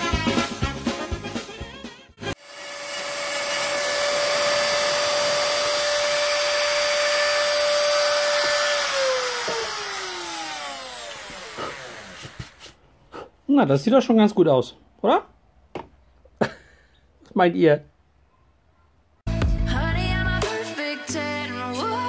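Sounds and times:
rotary tool high whine: 0:02.4 - 0:12.6.

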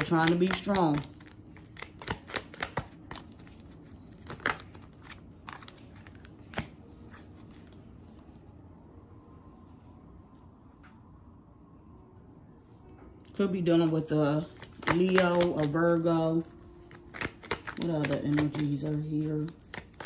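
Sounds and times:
cards snapping and clicking: 0:00.0 - 0:06.7, 0:14.5 - 0:15.8, 0:16.9 - 0:20.0.

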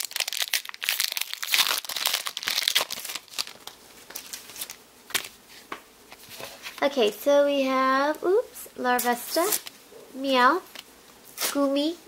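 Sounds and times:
foil wrapper crinkling: 0:00.0 - 0:05.4.

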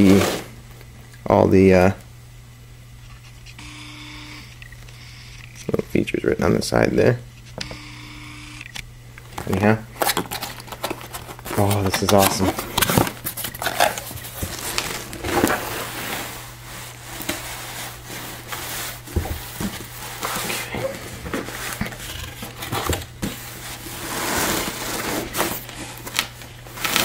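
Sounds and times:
box sliding and knocking: 0:00.0 - 0:00.6, 0:12.3 - 0:25.7
cardboard flaps rustling: 0:09.4 - 0:27.0.

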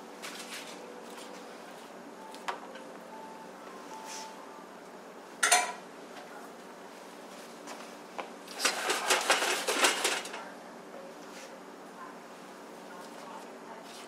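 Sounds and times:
food rattling on metal pan: 0:08.5 - 0:10.4.

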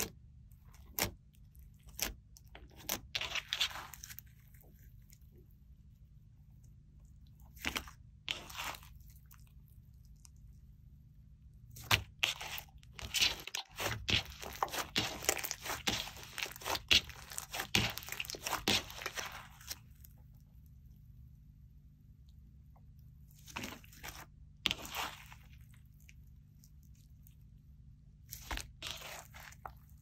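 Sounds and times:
slime squishes: 0:00.0 - 0:20.9, 0:22.2 - 0:30.0
slime crackling and popping: 0:11.8 - 0:19.8.

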